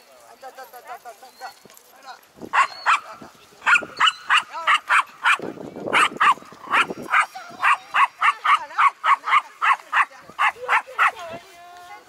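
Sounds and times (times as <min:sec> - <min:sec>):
small dog barking: 0:02.5 - 0:11.2.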